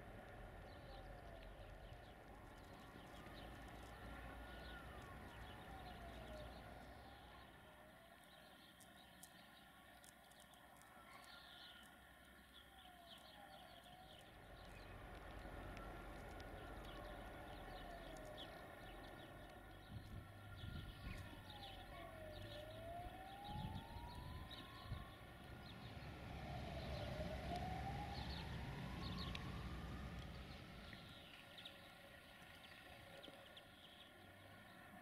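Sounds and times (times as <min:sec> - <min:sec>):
faint siren wailing: 0:00.0 - 0:32.2.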